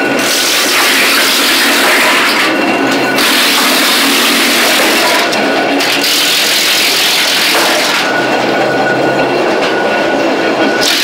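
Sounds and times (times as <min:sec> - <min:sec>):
wood chipper chipping branches: 0:00.1 - 0:08.5, 0:10.8 - 0:11.0.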